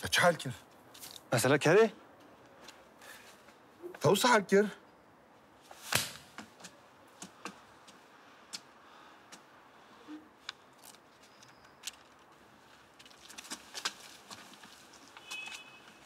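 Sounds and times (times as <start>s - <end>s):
clicks and rustles of paper: 12.9s - 16.0s.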